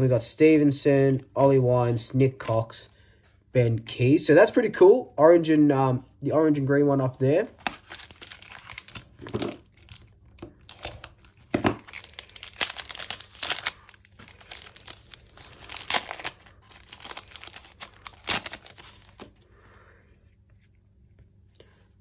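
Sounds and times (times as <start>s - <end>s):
foil wrapper tearing and crinkling: 7.6s - 19.4s.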